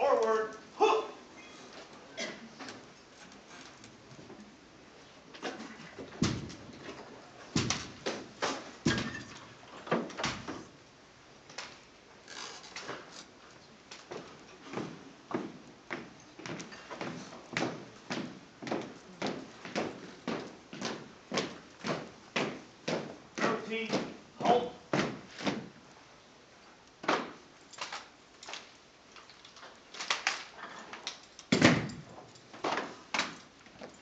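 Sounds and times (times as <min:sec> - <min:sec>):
marching shoes on wooden floor: 0:05.5 - 0:09.1, 0:14.0 - 0:25.8
heel stomps on hard floor: 0:06.2 - 0:06.6.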